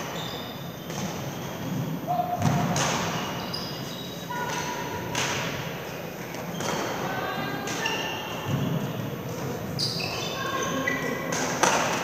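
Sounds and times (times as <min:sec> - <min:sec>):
shoes squeaking on court floor: 0:00.0 - 0:12.0
rackets striking shuttlecocks: 0:02.4 - 0:03.4, 0:04.4 - 0:05.8, 0:11.2 - 0:12.0.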